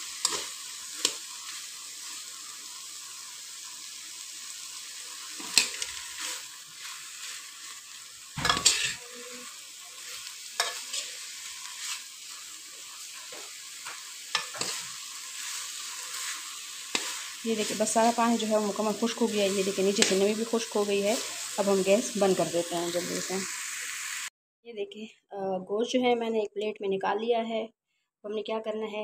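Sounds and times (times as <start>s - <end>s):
meat sizzling in a pot: 0.0s - 24.3s
spoon scraping a pot: 8.4s - 12.0s.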